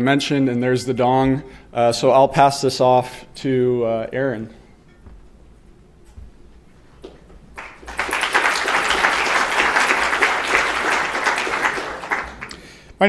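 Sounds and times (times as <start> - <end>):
audience applauding: 7.6 - 12.8.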